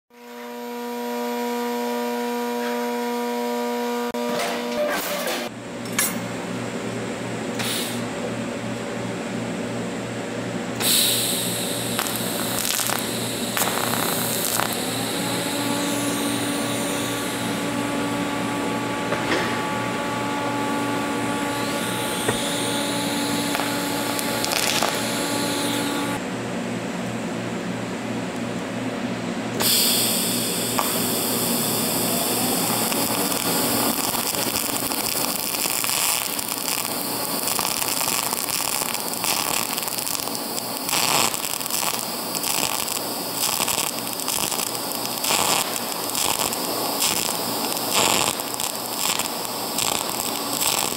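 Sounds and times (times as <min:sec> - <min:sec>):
welding arc hissing: 0:00.2 - 0:04.8, 0:07.6 - 0:08.1, 0:10.8 - 0:26.2, 0:29.6 - 0:50.9
low hum: 0:11.4 - 0:26.5.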